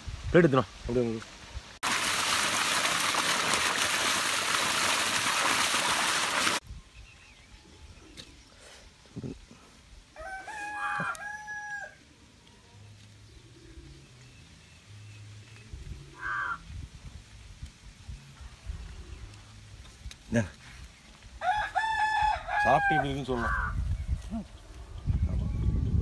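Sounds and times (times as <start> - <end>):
water gushing from a pipe: 1.8 - 6.6
water splashing on ground: 1.8 - 6.6
rooster crowing: 10.2 - 12.0, 21.4 - 23.7.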